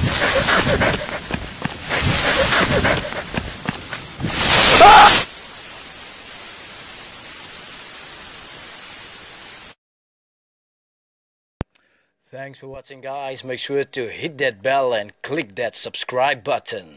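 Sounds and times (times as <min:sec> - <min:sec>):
microphone static hiss: 0:00.0 - 0:09.8
loud distorted burst: 0:04.0 - 0:05.3.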